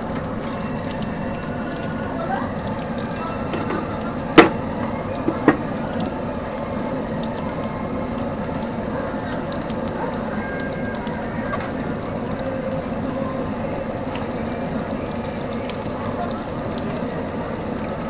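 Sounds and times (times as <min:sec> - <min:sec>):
fritters sizzling in hot oil: 0:00.0 - 0:18.0
metal clank on wok: 0:03.2 - 0:04.6.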